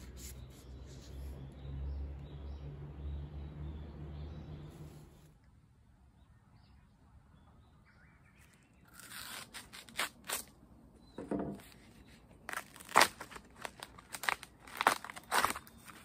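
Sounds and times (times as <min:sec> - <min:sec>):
husks tearing off bamboo shoots: 0:08.8 - 0:10.5, 0:12.4 - 0:16.0.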